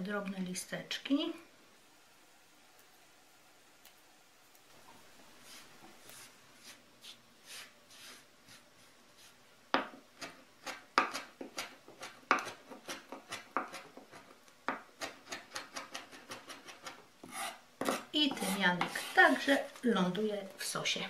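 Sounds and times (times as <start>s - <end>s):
knife chopping on wooden board: 9.8s - 19.0s.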